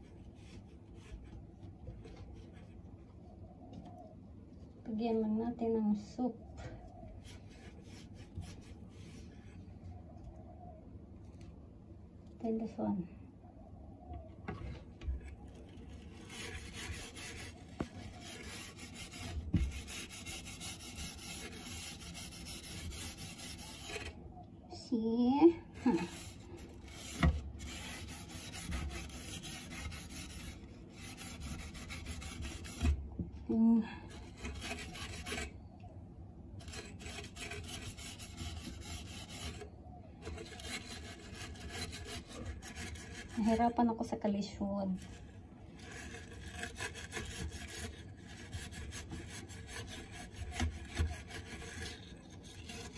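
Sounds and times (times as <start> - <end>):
steel wool scrubbing: 7.2 - 9.6, 15.8 - 24.2, 25.7 - 33.0, 34.1 - 35.6, 36.6 - 52.9.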